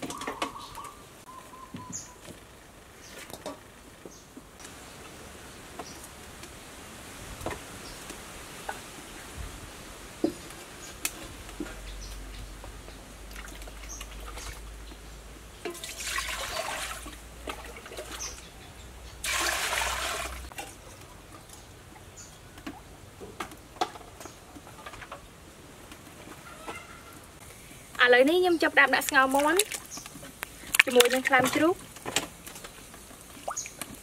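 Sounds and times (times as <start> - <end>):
water pouring into metal pot: 15.7 - 18.1, 19.2 - 20.5.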